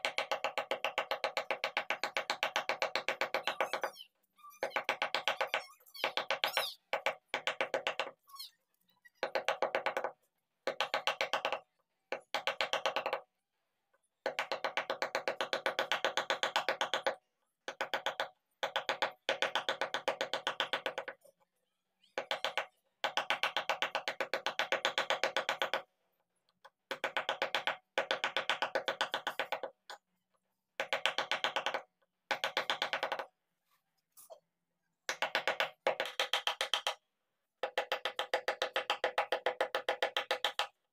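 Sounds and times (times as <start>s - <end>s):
mallet tapping wood chisel: 14.2s - 21.2s, 30.8s - 33.3s, 35.1s - 37.0s, 37.6s - 40.7s.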